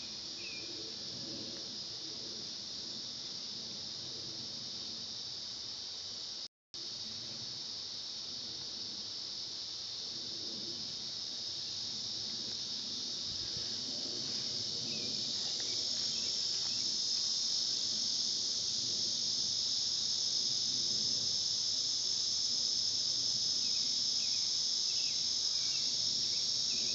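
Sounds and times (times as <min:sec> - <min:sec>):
insects singing: 0:00.0 - 0:03.2, 0:10.7 - 0:26.9.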